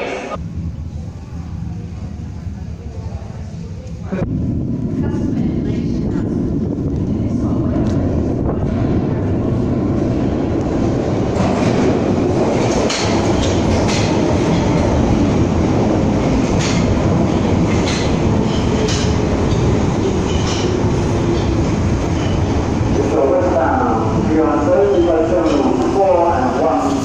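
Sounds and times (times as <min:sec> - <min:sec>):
train wheels rumbling on rail: 0:00.4 - 0:27.0
clacks over rail joints: 0:12.6 - 0:14.8, 0:16.4 - 0:17.0.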